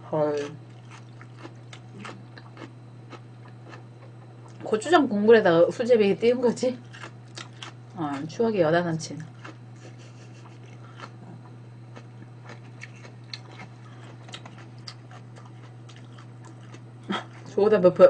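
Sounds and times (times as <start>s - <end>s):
steady low hum: 0.0s - 18.0s
person chewing food: 0.4s - 4.6s, 6.8s - 8.2s, 9.2s - 17.5s.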